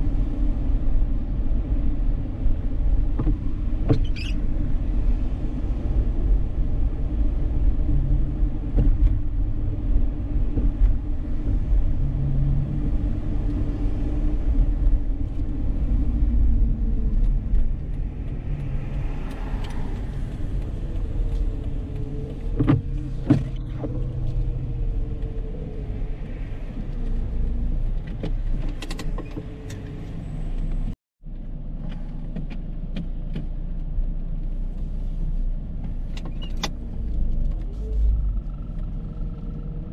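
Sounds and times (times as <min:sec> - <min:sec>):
road and engine rumble: 0:00.0 - 0:39.9.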